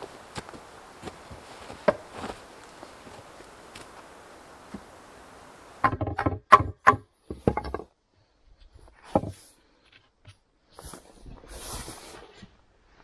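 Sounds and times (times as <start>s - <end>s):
sharp wooden knocks: 5.8s - 7.9s.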